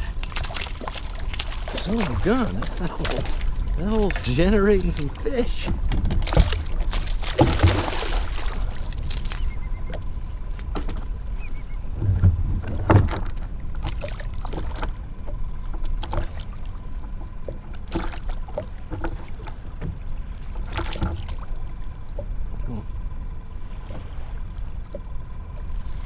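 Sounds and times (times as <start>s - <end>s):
wind rumbling on microphone: 0.0s - 14.6s
water slapping kayak hull: 0.0s - 22.6s
fish splashing: 6.3s - 9.4s.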